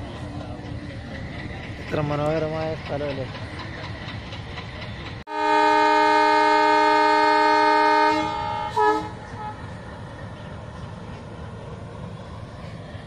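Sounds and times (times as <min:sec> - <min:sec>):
train coaches rumbling past: 0:00.0 - 0:13.0
locomotive horn blast: 0:05.3 - 0:09.7.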